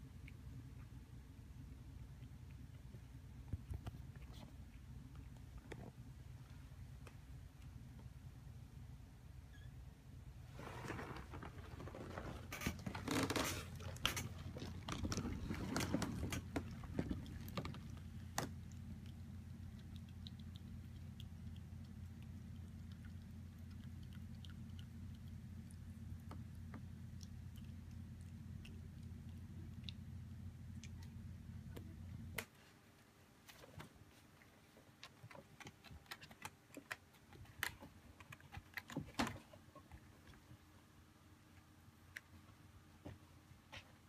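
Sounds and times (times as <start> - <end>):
cat purring: 10.5 - 32.3.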